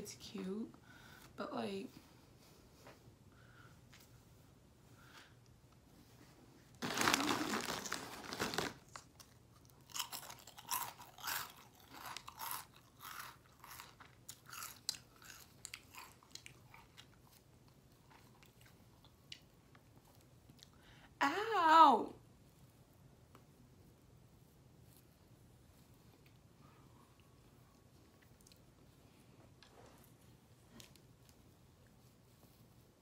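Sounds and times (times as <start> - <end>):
person crunching chips: 6.8 - 17.2.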